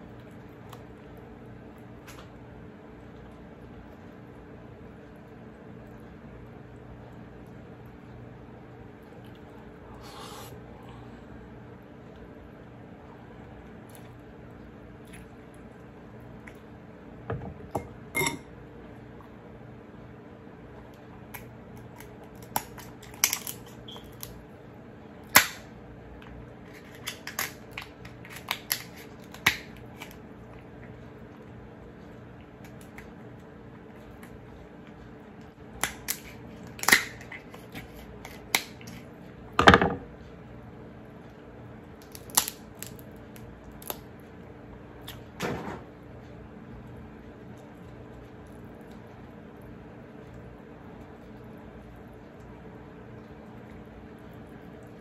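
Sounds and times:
crab shell cracking: 0:21.3 - 0:24.4, 0:26.7 - 0:30.2, 0:35.8 - 0:39.0, 0:42.0 - 0:44.1.

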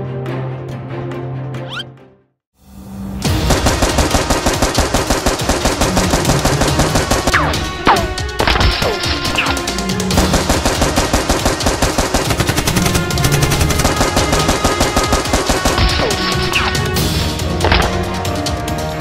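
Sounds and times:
background music: 0:00.0 - 0:19.0
rapid machine gun fire: 0:03.3 - 0:17.0.

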